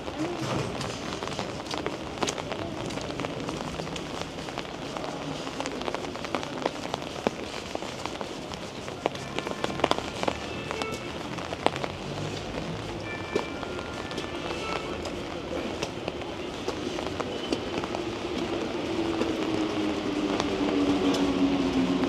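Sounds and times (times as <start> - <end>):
rain falling: 0.0 - 22.0.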